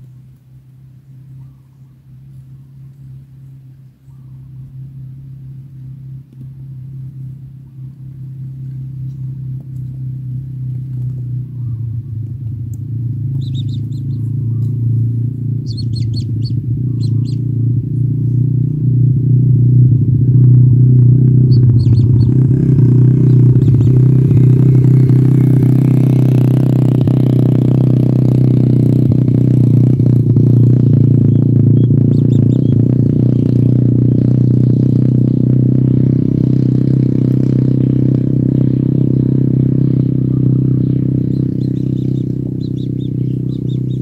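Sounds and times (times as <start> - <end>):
low engine-like drone: 0.0 - 44.0
nestlings chirping: 13.3 - 17.5, 21.4 - 24.5, 31.2 - 33.5, 40.4 - 44.0.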